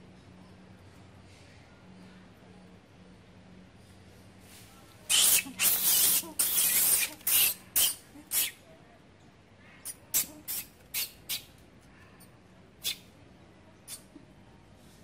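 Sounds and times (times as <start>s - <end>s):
monkey hissing calls: 5.1s - 8.6s, 10.1s - 11.5s, 12.8s - 13.1s.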